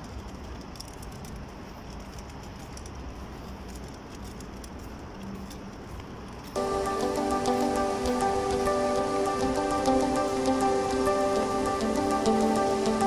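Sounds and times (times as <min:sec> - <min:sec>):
music: 0:06.6 - 0:13.0.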